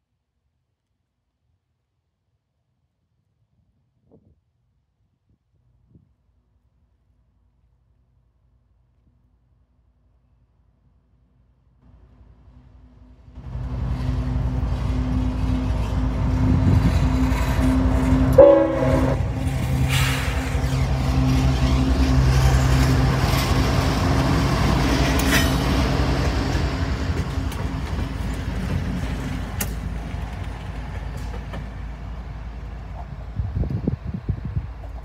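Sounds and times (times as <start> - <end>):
diesel locomotive engines rumbling: 11.9 - 35.0
train wheels on rail: 11.9 - 35.0
locomotive horn blast: 17.5 - 25.2.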